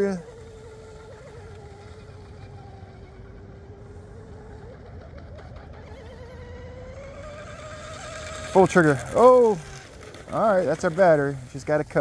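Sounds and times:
rc boat motor whining: 0.0s - 12.0s.

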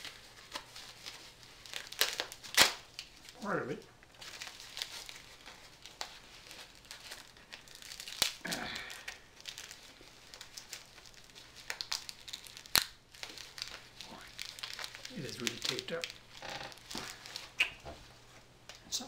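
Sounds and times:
plastic bag crinkling: 0.0s - 17.6s
packing tape snapping: 1.6s - 3.1s, 11.6s - 17.8s.

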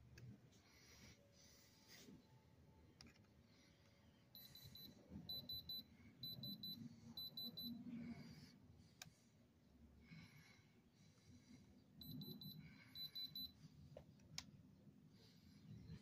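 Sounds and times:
high beeps: 4.4s - 7.8s.

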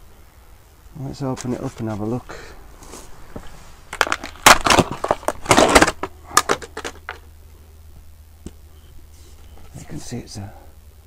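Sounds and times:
plastic packaging crinkling: 3.9s - 7.2s.

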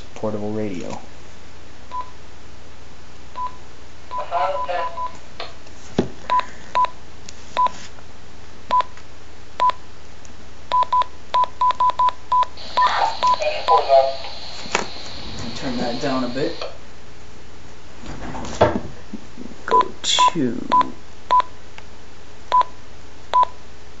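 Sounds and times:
radio keypad beeps: 10.7s - 14.1s, 19.7s - 21.5s.

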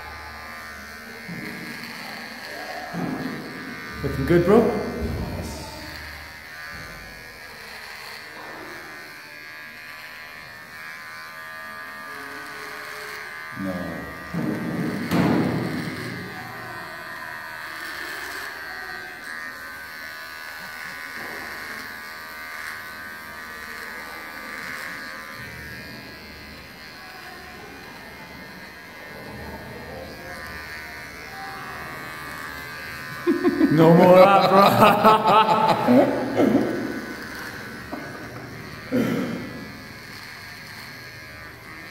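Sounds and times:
beard trimmer buzzing: 0.0s - 41.9s.

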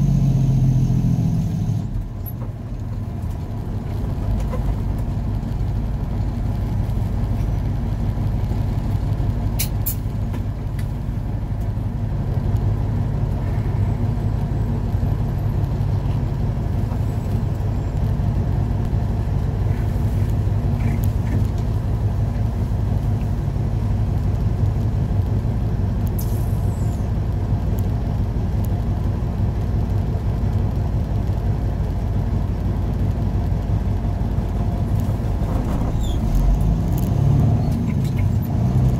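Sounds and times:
short falling squeak: 35.8s - 36.4s.

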